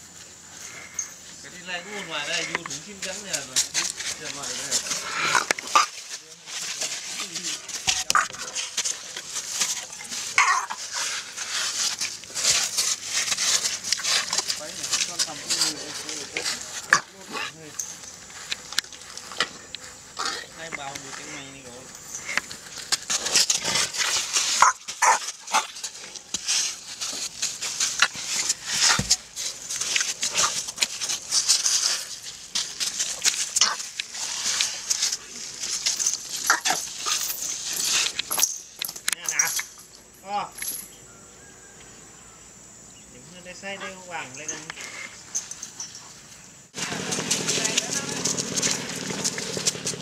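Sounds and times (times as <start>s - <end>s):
rustling and scraping against camera: 0.1s - 39.9s
elephant snuffling breaths: 0.3s - 2.6s, 3.6s - 6.0s, 6.7s - 17.6s
elephant squeaks: 7.8s - 12.0s.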